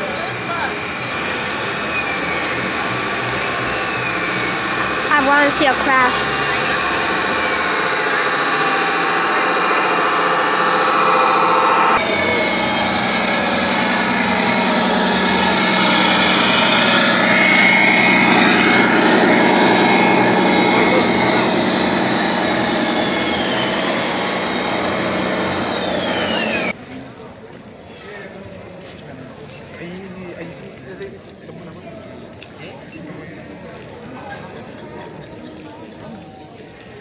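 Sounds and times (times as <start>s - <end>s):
engine-like drone: 0.0s - 26.8s
crowd chatter: 0.0s - 37.0s.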